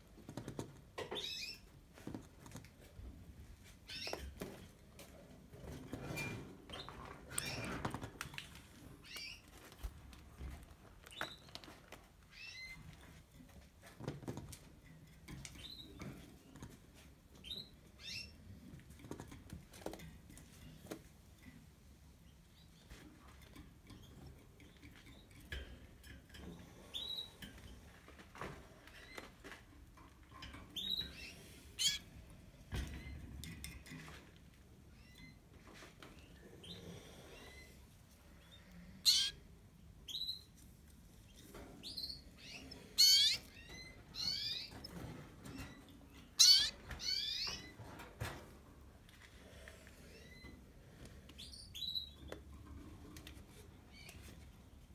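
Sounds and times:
canaries chirping: 1.0 - 1.7, 3.8 - 4.4, 9.0 - 9.5, 11.1 - 13.0, 17.4 - 18.4, 30.4 - 32.2, 38.4 - 40.6, 41.3 - 48.0, 51.4 - 52.4
taps and rustles in cage: 13.0 - 17.5, 43.9 - 48.8.

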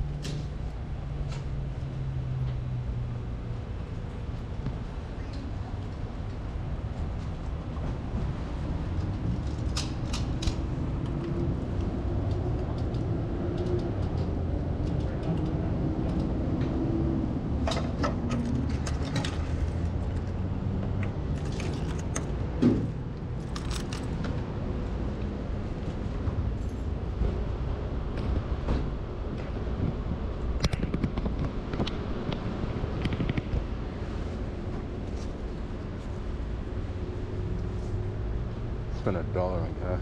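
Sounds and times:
sharp clicks and rattles: 21.0 - 22.4, 23.4 - 24.4.

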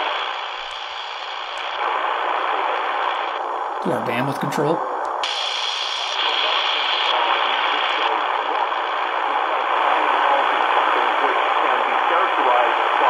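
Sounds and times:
radio static hissing: 0.0 - 13.0.

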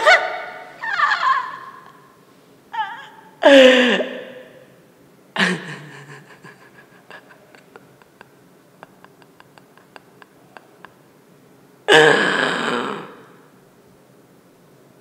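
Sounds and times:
woman sobbing: 0.0 - 2.1, 2.7 - 4.6, 5.4 - 11.0.

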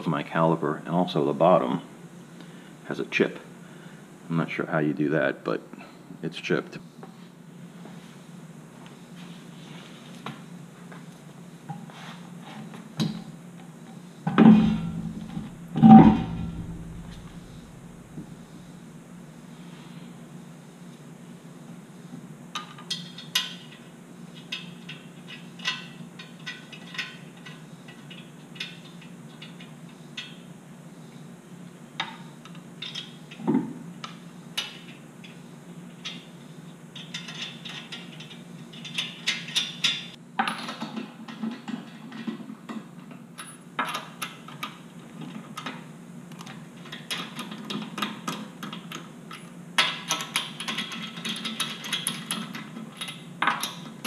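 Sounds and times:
steady low hum: 0.0 - 40.4.

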